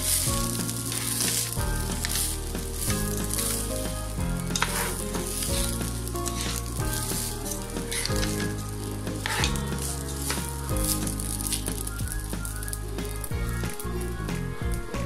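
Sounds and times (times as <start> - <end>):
spatula scraping pan: 0.0 - 14.0
rice sizzling in oil: 0.0 - 14.2
background music: 0.0 - 15.0.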